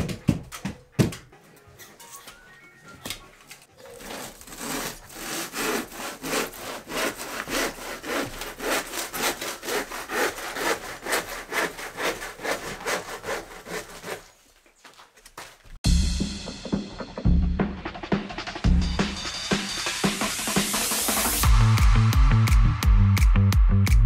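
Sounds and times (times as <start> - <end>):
handsaw cutting cork: 3.8 - 14.4.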